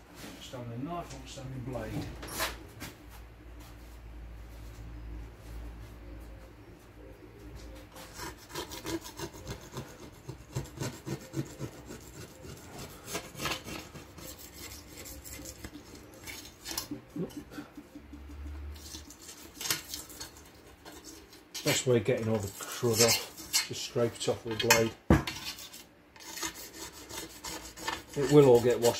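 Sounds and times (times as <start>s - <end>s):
blade scraping glass: 12.8s - 17.0s, 18.7s - 23.9s, 24.5s - 28.9s.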